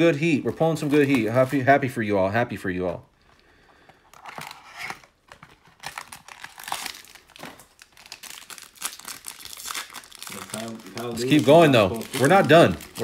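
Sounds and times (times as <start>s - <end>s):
foil wrapper crinkling and tearing: 4.1s - 13.0s.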